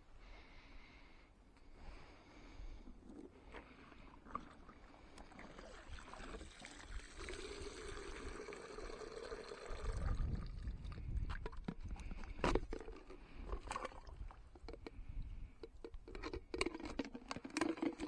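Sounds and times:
water pouring and trickling: 4.2 - 11.8.

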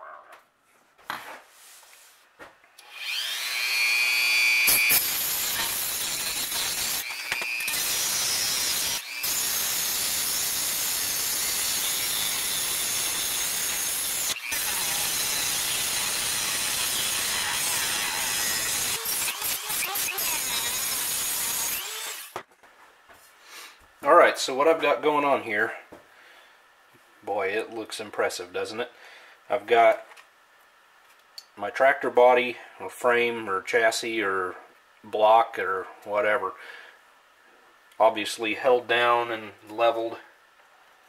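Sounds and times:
rotary tool grinding metal: 2.8 - 22.4.

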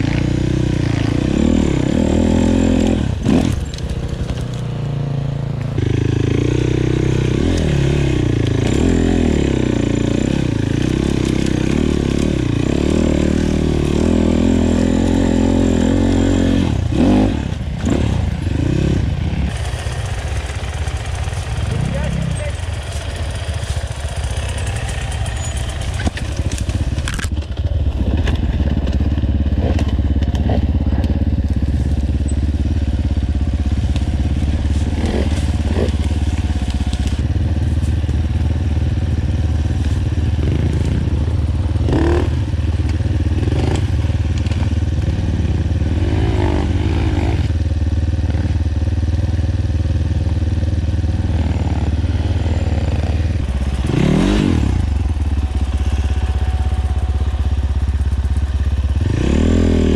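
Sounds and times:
motorcycle engine revving: 0.0 - 59.9
clattering on rough ground: 2.8 - 5.0, 19.6 - 32.4.

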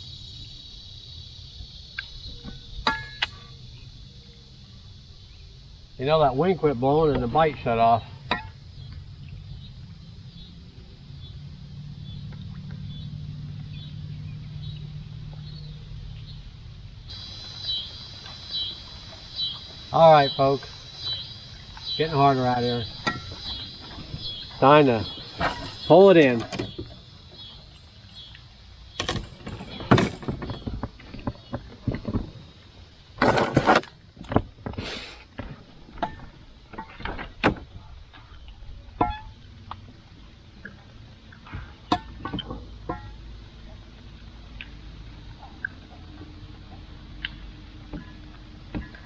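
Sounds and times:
bird chirping: 0.0 - 16.5, 17.1 - 31.6
low steady hum: 0.0 - 34.7.

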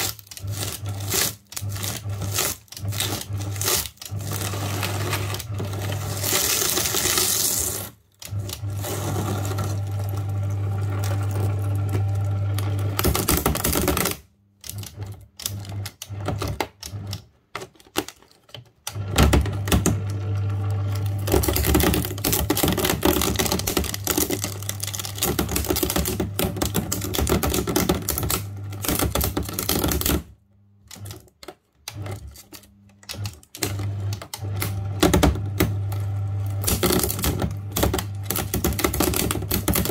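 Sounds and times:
paper shredder motor running: 0.0 - 17.2, 18.9 - 30.3, 30.9 - 39.9
shredder cutters clattering: 0.0 - 30.3, 30.9 - 39.9.

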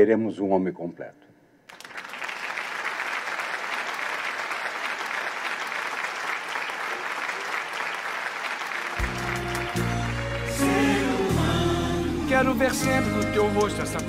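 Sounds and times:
audience applauding: 1.7 - 11.4
music with low held notes: 9.0 - 14.0.

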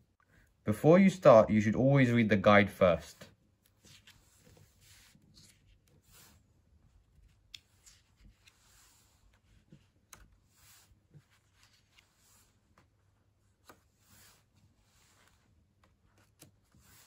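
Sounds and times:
paper pages rustling: 3.4 - 17.0.

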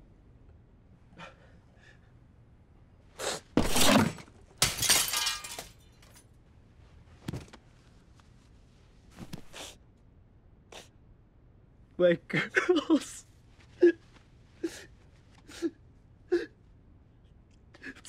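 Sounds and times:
glass clattering: 3.6 - 6.1
glass smashing: 3.6 - 6.2.

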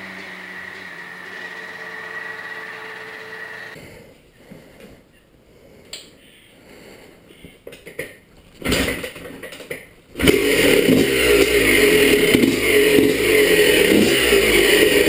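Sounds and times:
dirt bike engine running: 10.2 - 15.0.

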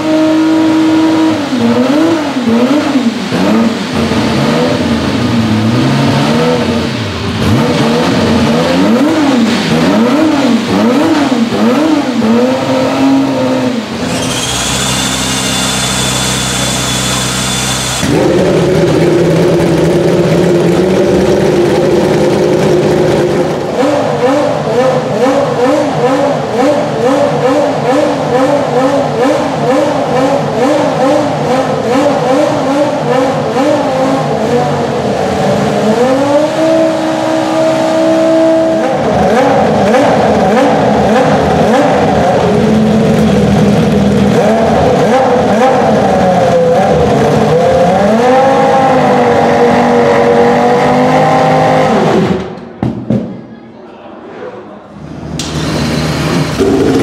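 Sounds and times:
racing car engine revving: 0.0 - 52.8, 54.9 - 57.0.

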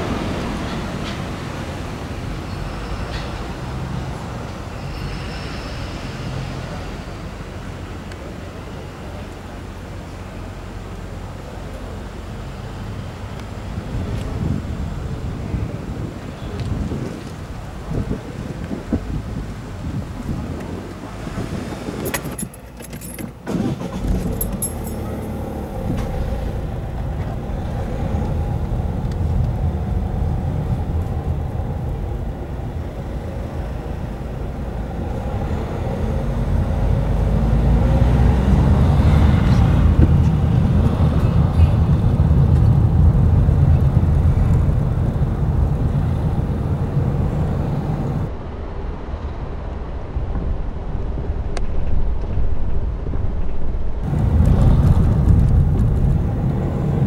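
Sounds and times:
car engine and tyre noise: 0.0 - 57.0.

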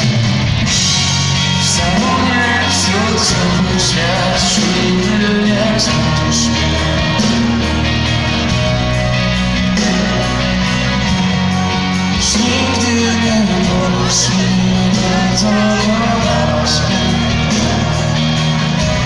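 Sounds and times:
live pop-rock band: 0.0 - 19.0
person singing: 1.3 - 8.3, 11.5 - 19.0.

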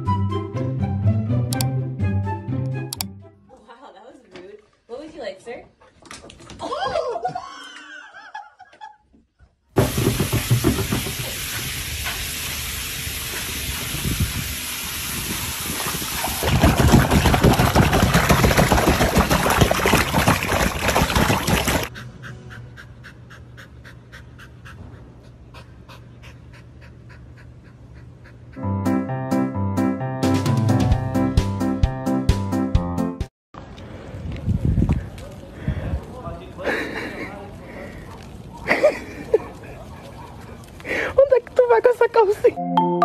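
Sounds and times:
water rushing and bubbling: 13.9 - 21.9.

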